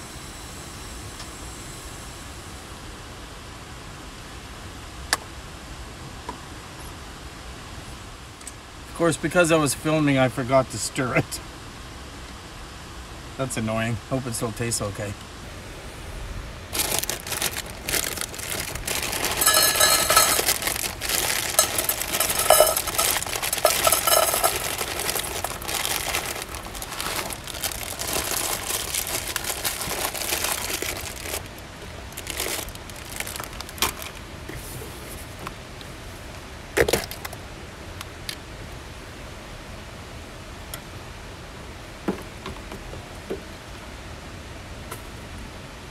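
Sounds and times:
plastic bag crinkling: 16.7s - 34.2s
dry dog food rattling into bowl: 16.8s - 31.5s.

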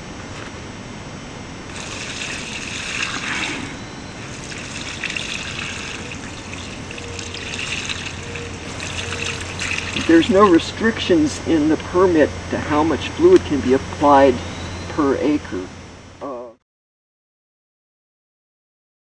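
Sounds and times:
liquid splashing onto plants: 1.7s - 10.5s.

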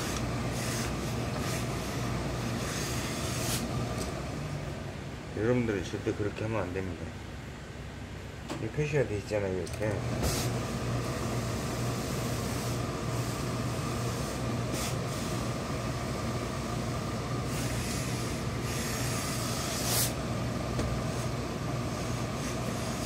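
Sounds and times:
steam iron hissing: 0.0s - 3.9s, 10.2s - 20.3s, 21.0s - 23.0s
steady low hum: 0.0s - 23.0s.

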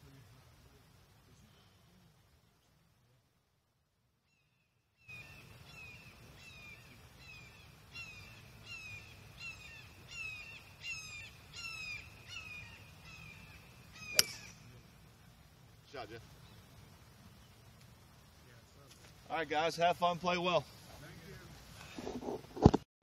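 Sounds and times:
bird calling falling notes: 5.1s - 14.7s
golf club striking ball: 14.1s - 14.7s.

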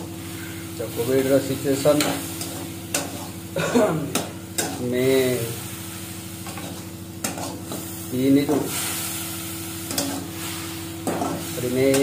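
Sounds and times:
paste sizzling in a pan: 0.0s - 12.0s
spatula scraping a pan: 1.9s - 3.4s, 4.1s - 5.3s, 6.4s - 9.0s, 9.8s - 12.0s.

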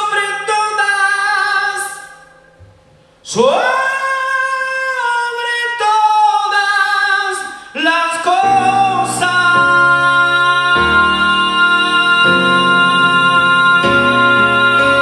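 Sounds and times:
person singing: 3.2s - 15.0s
keyboard chords: 8.4s - 15.0s.

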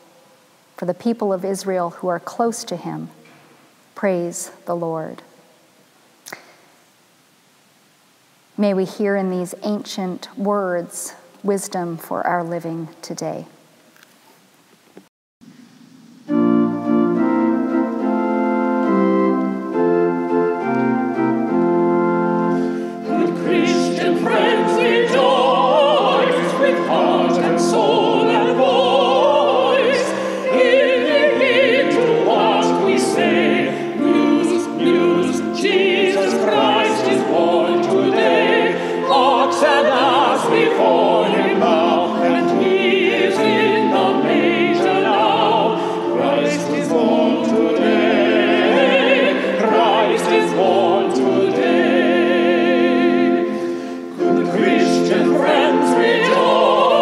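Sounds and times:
keyboard chords: 16.1s - 57.0s
vocal ensemble singing: 22.4s - 57.0s.

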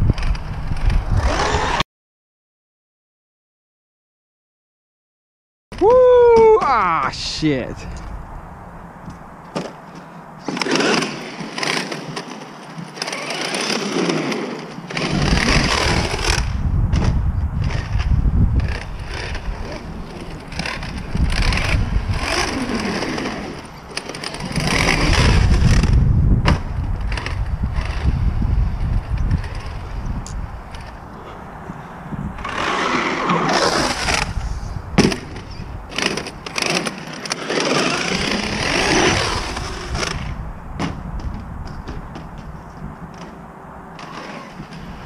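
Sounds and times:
wind on microphone: 0.0s - 1.8s, 14.9s - 36.8s, 37.5s - 45.0s
tyre noise on concrete: 9.0s - 45.0s.

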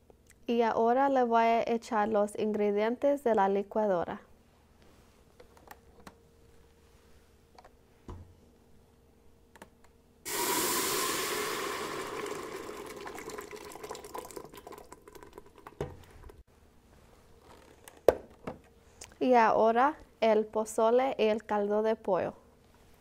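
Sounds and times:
sauce pouring into steel pot: 10.3s - 16.4s.

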